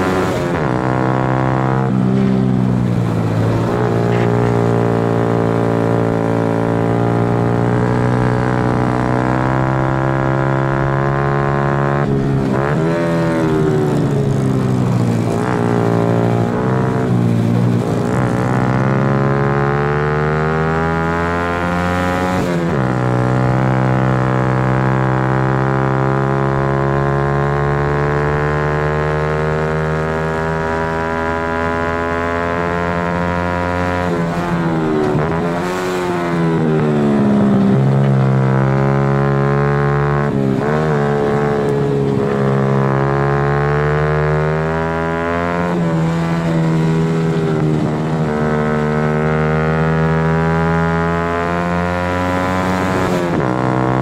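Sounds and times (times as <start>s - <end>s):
motorcycle engine revving: 0.0s - 54.0s.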